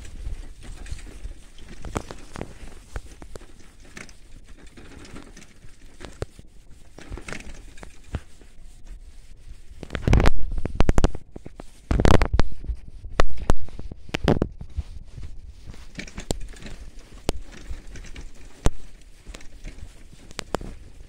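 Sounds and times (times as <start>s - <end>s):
bicycle rattling over rough ground: 0.0s - 21.0s
low rumbles on microphone: 8.2s - 21.0s.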